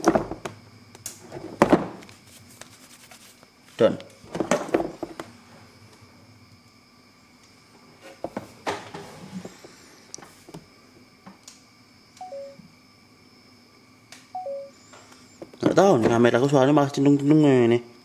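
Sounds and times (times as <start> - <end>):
falling two-note electronic beeps: 12.2 - 12.6, 14.4 - 14.8.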